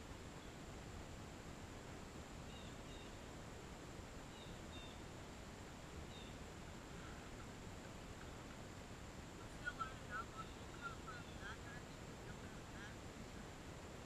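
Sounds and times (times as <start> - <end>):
steady hiss: 0.0 - 14.0
faint bird chirps: 2.4 - 3.3, 4.2 - 5.1, 6.0 - 8.5, 9.4 - 13.4.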